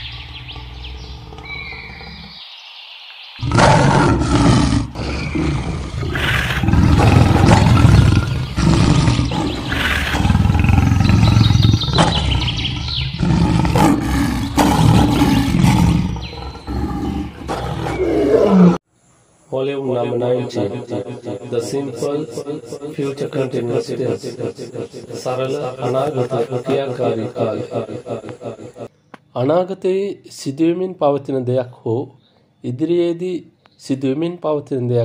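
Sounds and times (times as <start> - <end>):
lion roaring and growling: 0.0 - 2.4, 3.4 - 18.8.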